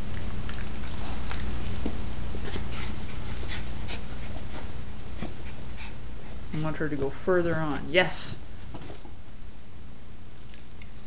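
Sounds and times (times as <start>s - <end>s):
steady low hum: 0.0s - 11.0s
dog feet tapping and rustling: 0.1s - 7.9s, 8.6s - 9.2s.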